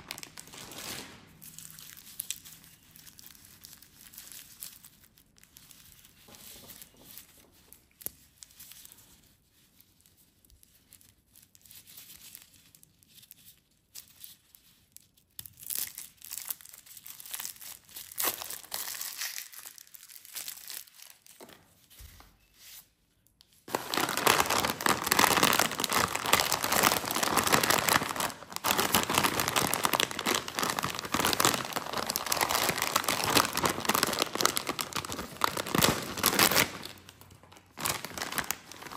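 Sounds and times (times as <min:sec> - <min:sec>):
chip bag crinkling open: 0:00.0 - 0:05.4, 0:23.7 - 0:38.9
plastic wrappers crinkling: 0:00.0 - 0:09.2, 0:10.3 - 0:22.0, 0:23.6 - 0:38.9.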